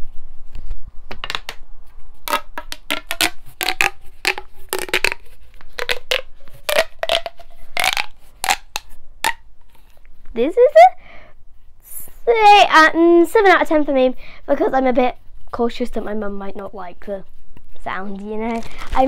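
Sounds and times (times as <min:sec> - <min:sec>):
plastic pop tube snapping: 0:01.1 - 0:01.6, 0:02.2 - 0:09.8.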